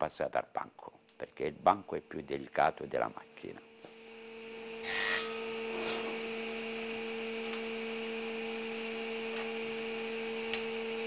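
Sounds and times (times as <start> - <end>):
table saw motor humming: 4.0 - 11.0.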